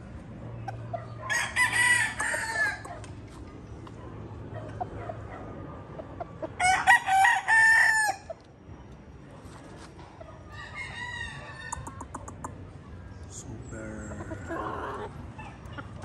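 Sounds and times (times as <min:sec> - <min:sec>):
rooster crowing: 0:01.2 - 0:02.9, 0:06.6 - 0:08.3, 0:10.5 - 0:11.8.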